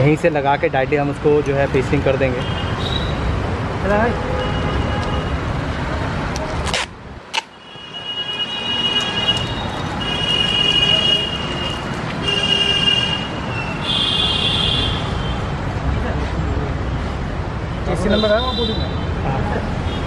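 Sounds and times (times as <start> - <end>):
workshop background noise: 0.0 - 3.8, 4.7 - 13.8.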